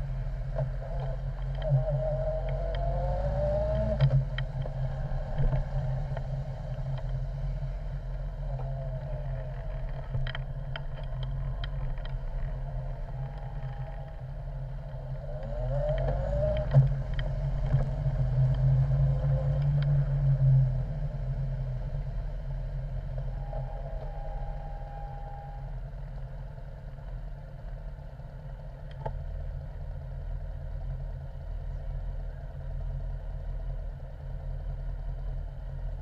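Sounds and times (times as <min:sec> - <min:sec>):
motorcycle engine accelerating: 0:00.6 - 0:25.5.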